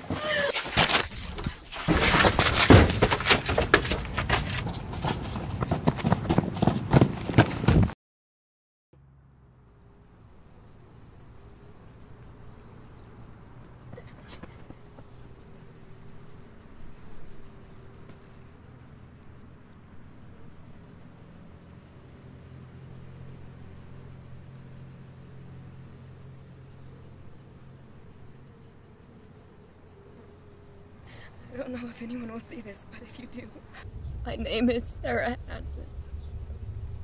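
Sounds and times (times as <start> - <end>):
cicadas buzzing: 9.0 - 37.0
low hum: 33.5 - 37.0.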